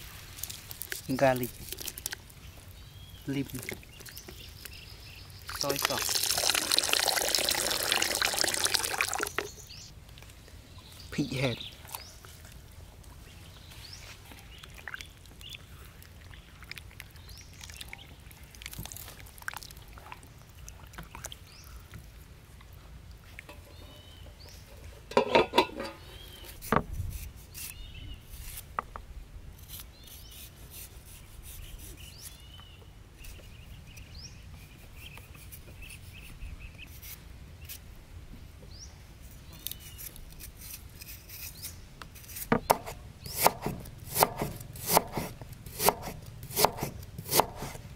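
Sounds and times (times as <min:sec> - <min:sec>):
cleaver scraping ginger: 0:25.7 - 0:28.7, 0:29.6 - 0:32.4, 0:39.4 - 0:47.9.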